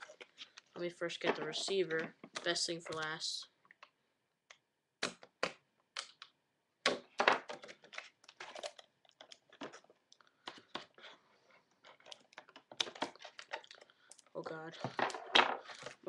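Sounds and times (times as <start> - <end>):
packaging tearing and crinkling: 7.6 - 9.8.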